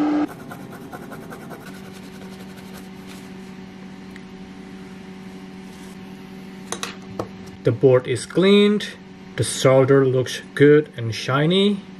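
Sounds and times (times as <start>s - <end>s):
steady electrical hum: 0.0s - 11.9s
brush scrubbing circuit board: 0.3s - 3.2s.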